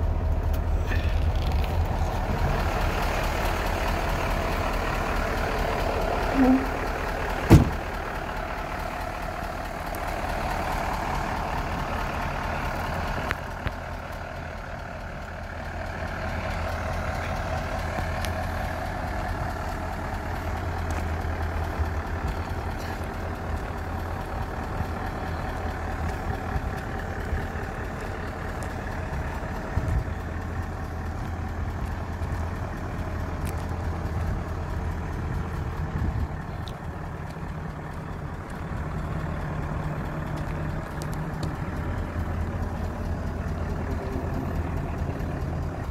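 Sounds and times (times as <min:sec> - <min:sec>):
diesel truck engine idling: 0:00.0 - 0:45.9
sharp knock: 0:07.5 - 0:07.8.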